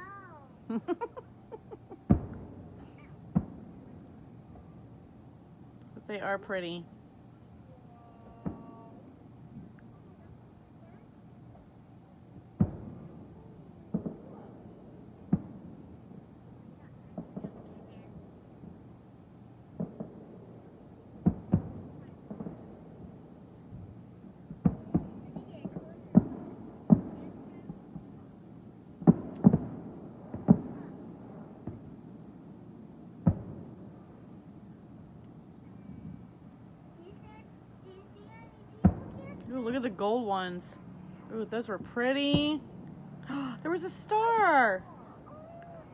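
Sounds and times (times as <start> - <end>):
firework shells bursting: 12.4 - 16.5, 19.7 - 36.6.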